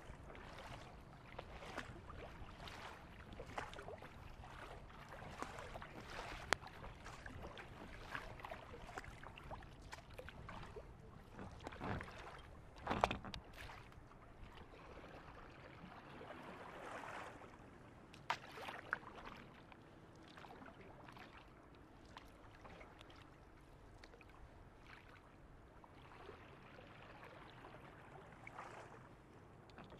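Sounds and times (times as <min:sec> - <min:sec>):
paddle splashes: 0:00.0 - 0:29.9
water lapping against kayak hull: 0:00.0 - 0:29.9.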